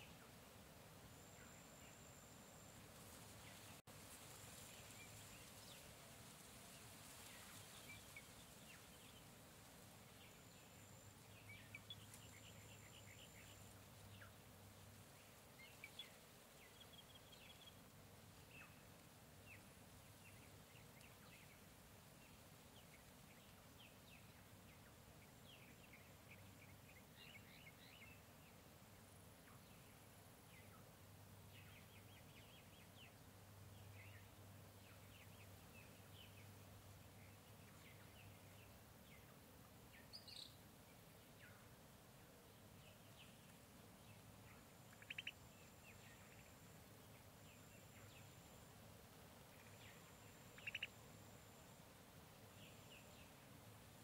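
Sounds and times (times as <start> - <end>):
background hiss: 0.0 - 54.0
bird chirps and calls: 44.9 - 45.4, 49.6 - 50.9.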